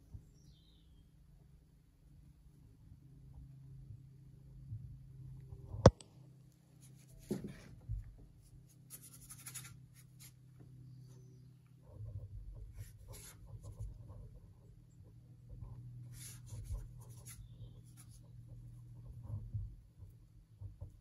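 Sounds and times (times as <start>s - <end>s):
brush scratching on panel: 8.7s - 10.4s, 11.9s - 14.7s, 15.6s - 19.5s.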